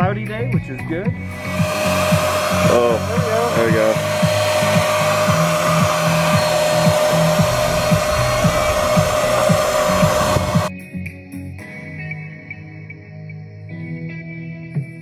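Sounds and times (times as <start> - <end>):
electric paint sprayer whining: 1.1 - 10.7.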